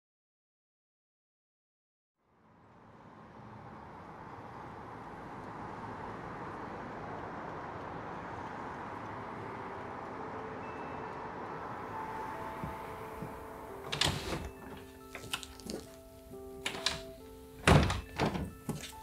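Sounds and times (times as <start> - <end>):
distant traffic rumble: 2.3 - 19.0
faint held notes: 8.8 - 17.6.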